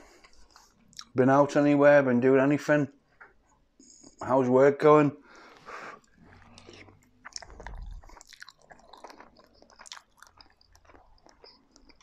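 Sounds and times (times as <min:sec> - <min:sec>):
man chewing food: 0:00.0 - 0:01.2, 0:05.3 - 0:12.0
wet mouth clicks: 0:06.0 - 0:12.0.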